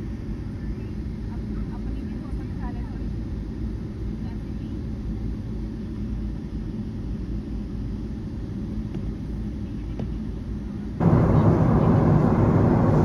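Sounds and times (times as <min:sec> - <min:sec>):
airport terminal rumble: 0:00.0 - 0:05.0, 0:10.3 - 0:13.0.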